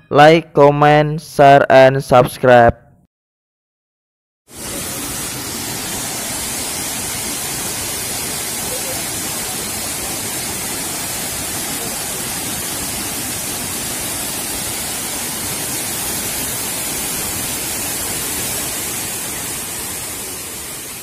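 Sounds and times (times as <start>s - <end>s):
waterfall rushing: 4.5s - 21.0s.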